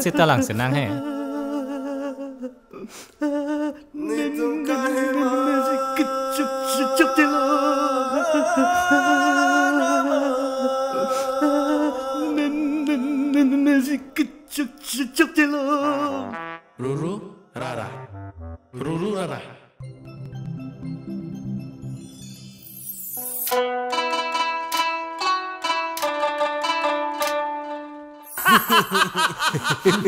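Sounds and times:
man wailing and sobbing: 0:00.0 - 0:14.2, 0:28.4 - 0:30.0.

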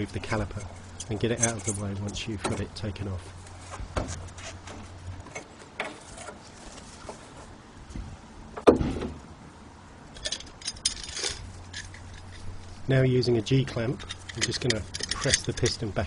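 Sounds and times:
brake caliper metal clinks and rattles: 0:10.2 - 0:12.6, 0:13.7 - 0:16.0
light clicks and rustles: 0:13.7 - 0:16.0.

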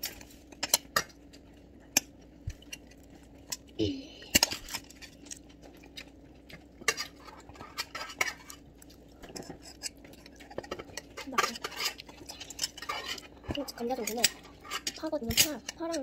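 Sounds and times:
cutlery clinking on steel bowls: 0:04.3 - 0:08.6, 0:09.2 - 0:16.0.

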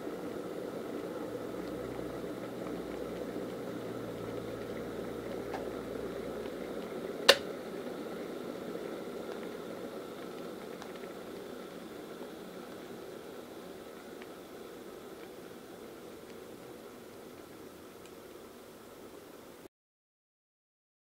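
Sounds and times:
kettle water boiling: 0:00.0 - 0:19.7
kettle switch click: 0:07.3 - 0:07.5.

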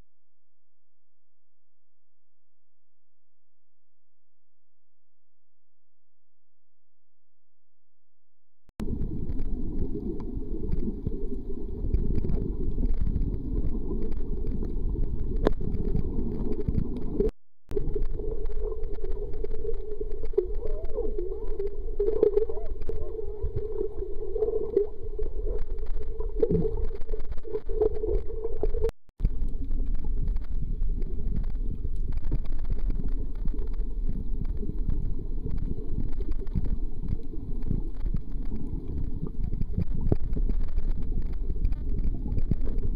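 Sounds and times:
underwater rumble: 0:08.8 - 0:42.9.

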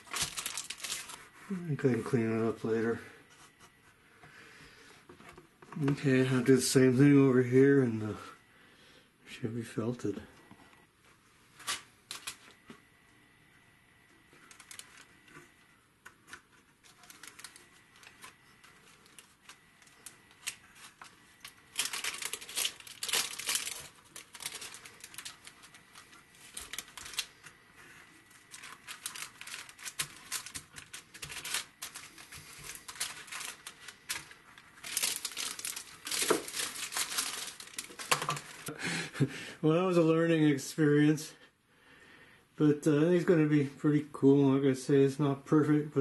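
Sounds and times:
plastic sheeting crinkling: 0:00.0 - 0:03.0, 0:14.3 - 0:15.4, 0:16.7 - 0:38.7.

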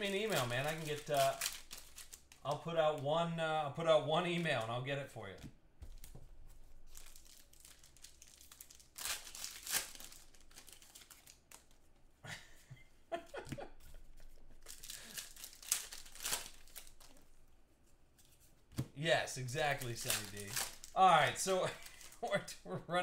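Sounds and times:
wrappers tearing and crinkling: 0:00.0 - 0:02.6, 0:06.8 - 0:11.8, 0:14.6 - 0:17.3, 0:19.3 - 0:22.3.

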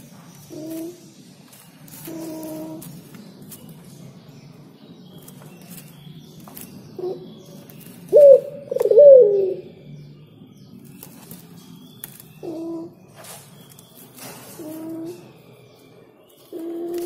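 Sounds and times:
dove cooing: 0:02.0 - 0:02.9, 0:08.1 - 0:09.7, 0:14.4 - 0:15.4, 0:16.5 - 0:17.0.

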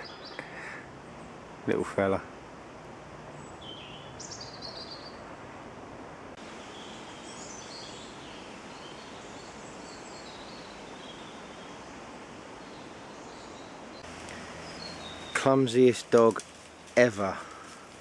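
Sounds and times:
small birds calling: 0:00.0 - 0:01.4, 0:03.2 - 0:05.4, 0:06.4 - 0:18.0
steady hiss: 0:06.3 - 0:18.0.

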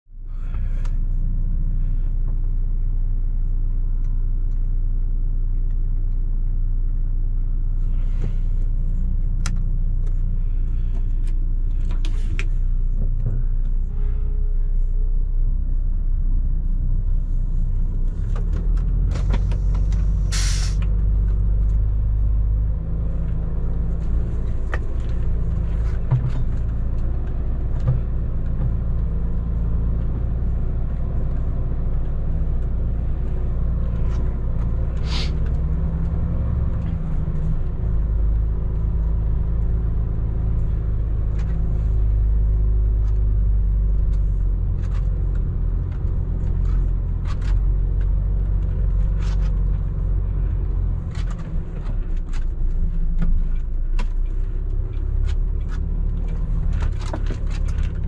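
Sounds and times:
truck diesel engine rumbling: 0:00.1 - 0:58.0
loud air hiss: 0:20.3 - 0:20.8, 0:35.0 - 0:35.4.

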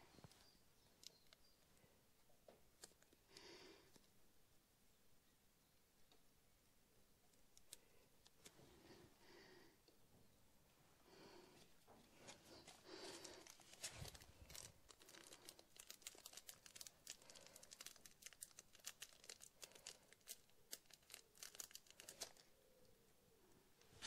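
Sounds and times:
faint crinkling: 0:00.0 - 0:04.2, 0:07.2 - 0:24.0
small ticks and clicks of parts: 0:07.3 - 0:08.5, 0:13.4 - 0:22.4.

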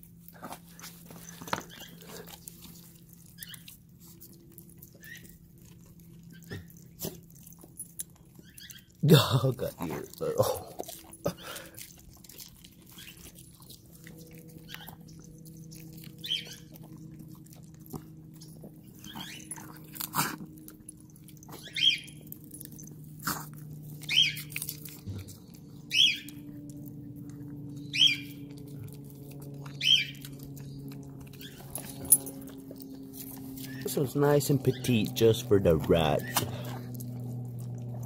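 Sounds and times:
dogs crunching asparagus: 0:00.0 - 0:38.0
low steady hum: 0:00.0 - 0:38.0.

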